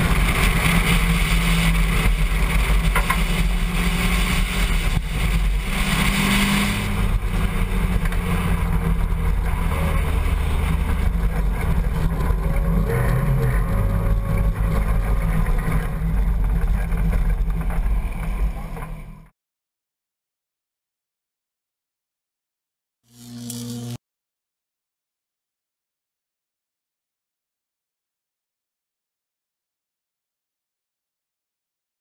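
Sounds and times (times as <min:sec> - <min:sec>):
wind noise on microphone: 0:00.0 - 0:19.0
race car engine drone: 0:00.0 - 0:19.3.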